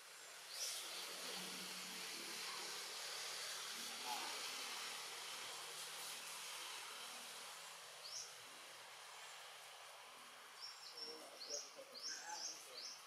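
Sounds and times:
outdoor ambient hiss: 0.0 - 13.0.

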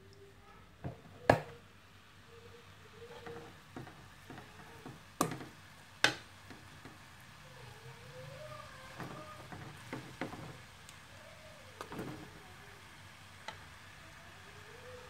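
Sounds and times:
spatula stirring in metal pan: 3.0 - 7.2, 8.0 - 10.8, 11.8 - 12.4
spatula knocking against pan: 3.1 - 7.0, 8.9 - 10.6.

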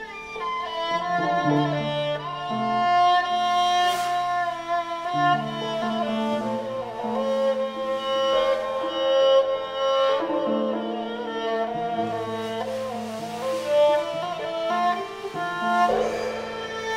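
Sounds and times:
bowed lyra melody: 0.0 - 16.9
lower held drone notes: 12.3 - 16.9.

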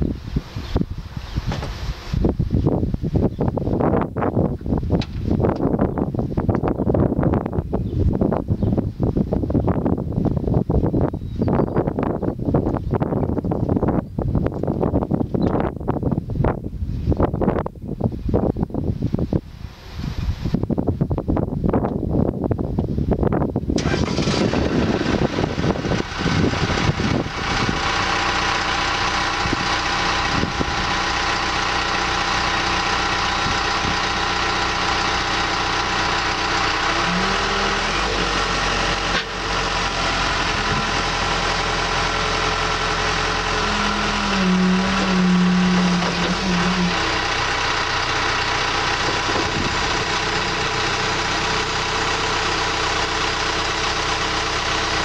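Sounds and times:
diesel engine idling: 23.8 - 55.0
hydraulics whining under load: 23.8 - 55.0.

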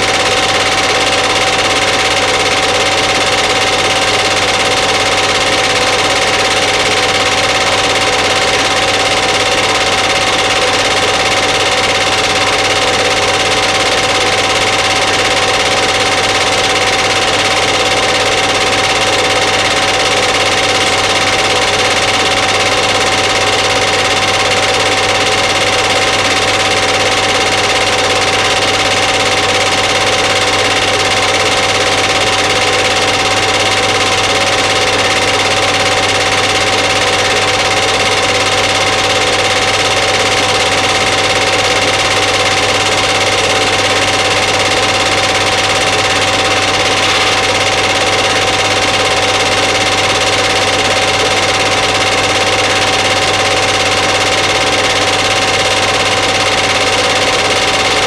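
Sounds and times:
machine running with whine: 0.0 - 58.0.

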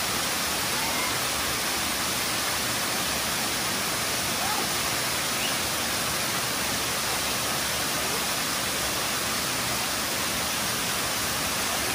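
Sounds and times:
waterfall rushing: 0.0 - 11.9.

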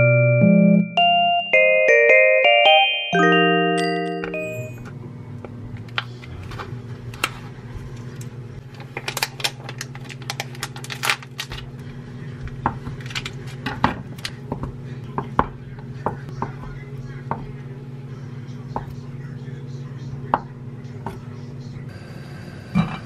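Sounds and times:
plastic packaging crinkling: 8.6 - 11.7.

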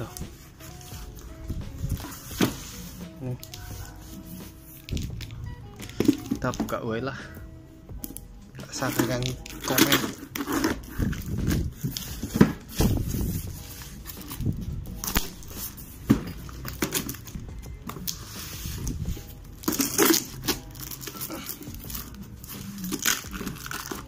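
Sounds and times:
cardboard crinkling and tearing: 8.7 - 15.8, 18.0 - 24.0
packing tape pulled off: 19.6 - 24.0.

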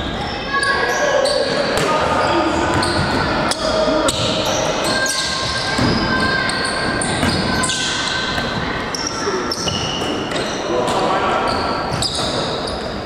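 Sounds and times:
sneakers squeaking: 0.0 - 13.0
players calling out: 0.1 - 13.0
basketball bouncing on court: 2.6 - 3.3, 5.2 - 7.8.

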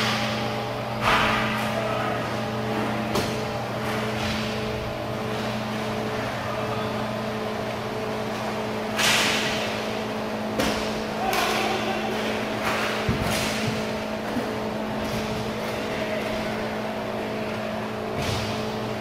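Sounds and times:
steady hum: 0.0 - 19.0
skate wheels and stick clatter: 11.2 - 16.5.

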